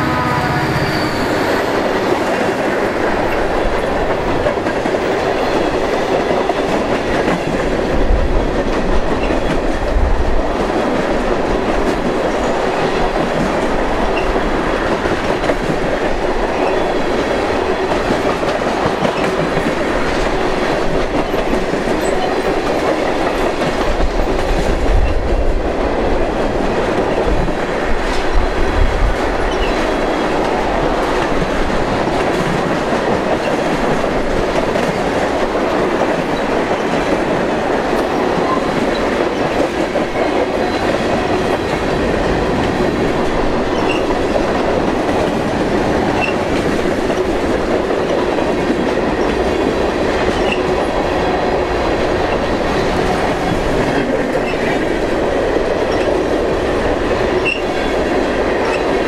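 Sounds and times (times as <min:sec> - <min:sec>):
freight train wheels on rails: 0:00.0 - 0:59.0
faint high wheel squeaks: 0:00.6 - 0:01.8.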